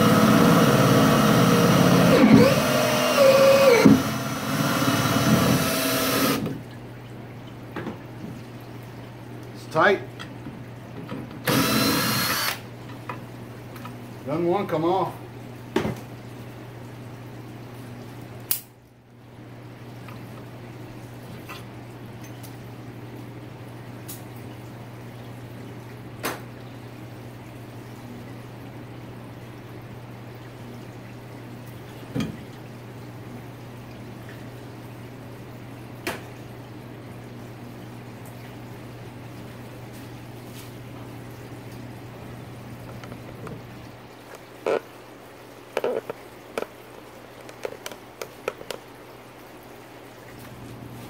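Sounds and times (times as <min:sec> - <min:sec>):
pump humming: 0:00.0 - 0:18.4, 0:19.0 - 0:51.0
liquid trickling: 0:06.5 - 0:11.0, 0:36.4 - 0:50.9.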